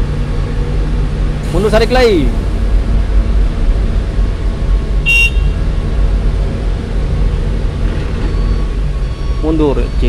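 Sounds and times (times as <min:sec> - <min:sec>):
excavator diesel engine rumbling: 0:00.0 - 0:10.0
short high-pitched horn beep: 0:05.1 - 0:05.5.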